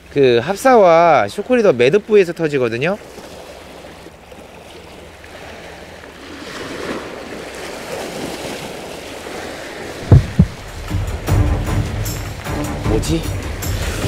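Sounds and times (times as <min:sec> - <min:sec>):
waves washing against rocky shore: 0:02.9 - 0:11.3.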